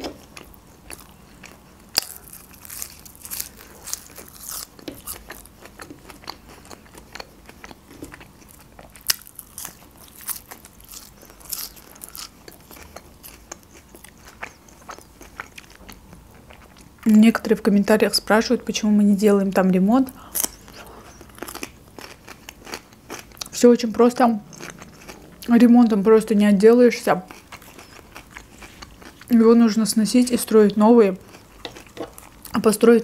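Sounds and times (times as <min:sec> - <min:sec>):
crunchy chewing of green onion: 0:00.0 - 0:16.9, 0:20.4 - 0:23.6, 0:24.4 - 0:25.5, 0:27.2 - 0:29.3, 0:31.2 - 0:32.6.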